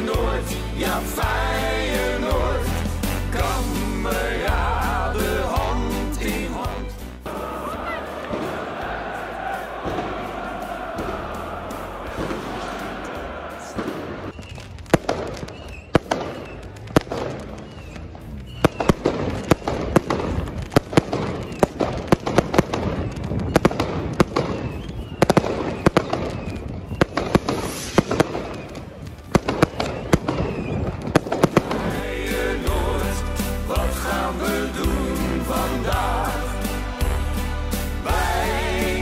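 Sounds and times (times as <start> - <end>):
fireworks bangs: 7.2 - 32.6.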